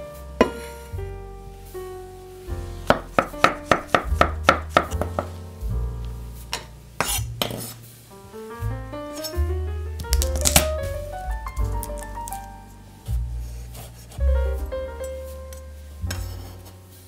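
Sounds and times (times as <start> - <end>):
background music: 0.0 - 17.0
knife chopping on wooden board: 2.9 - 5.3.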